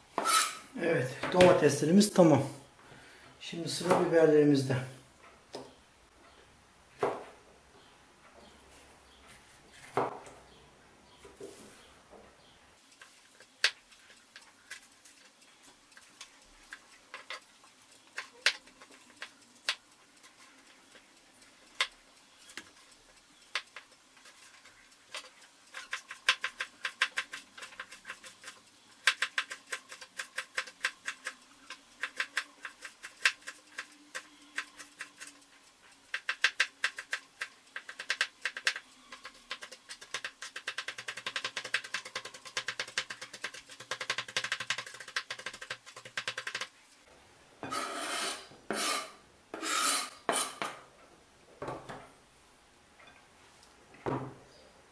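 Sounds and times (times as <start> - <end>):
knife chopping on plastic board: 37.8 - 46.6.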